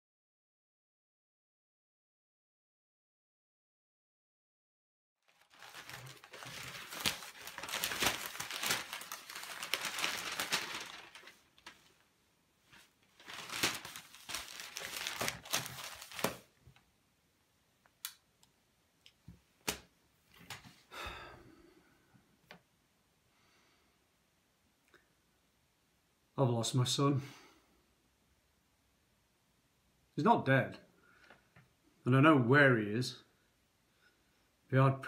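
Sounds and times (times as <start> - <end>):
crinkling rustling: 5.2 - 16.8.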